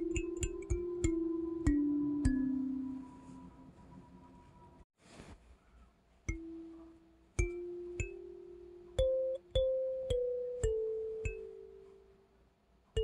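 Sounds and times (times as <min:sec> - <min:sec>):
bell-like melody: 0:00.0 - 0:03.8, 0:06.3 - 0:12.2.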